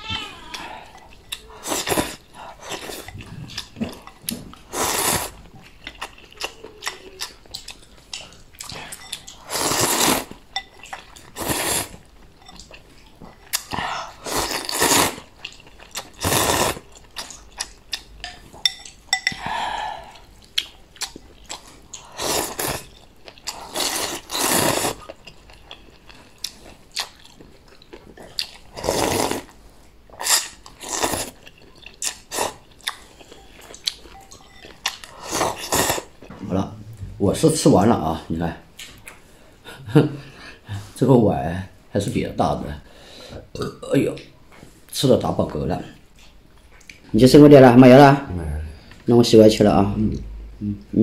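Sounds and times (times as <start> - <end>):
chewing: 0.1 - 36.4, 46.0 - 47.1
person slurping noodles: 4.7 - 5.3, 9.4 - 10.3, 11.4 - 11.9, 13.6 - 15.3, 16.2 - 16.8, 22.1 - 22.8, 23.5 - 25.0, 28.8 - 29.5, 35.1 - 36.1.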